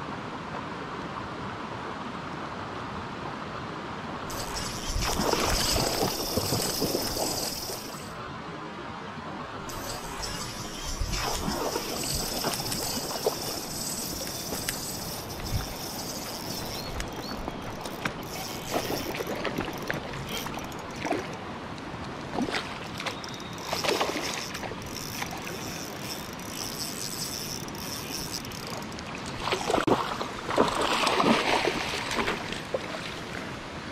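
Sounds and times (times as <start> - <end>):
wind: 0.0 - 33.9
moving water: 4.2 - 8.4, 9.4 - 33.9
water splashing and sloshing: 4.3 - 8.2, 9.7 - 33.5.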